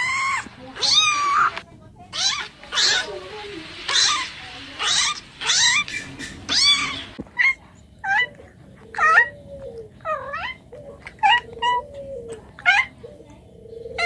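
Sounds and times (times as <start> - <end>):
cat meowing: 0.0 - 3.3, 3.9 - 5.9, 6.5 - 9.3.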